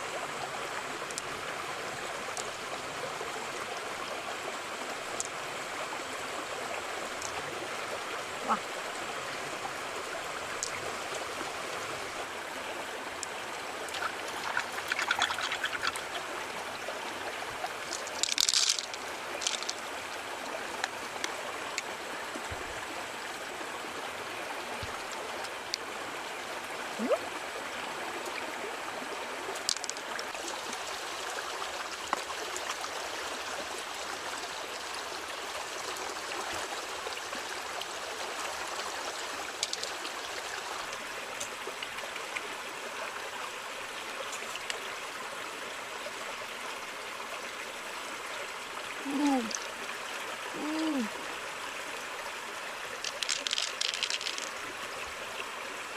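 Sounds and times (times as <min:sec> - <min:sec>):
stream trickling over stones: 0:00.0 - 0:55.9.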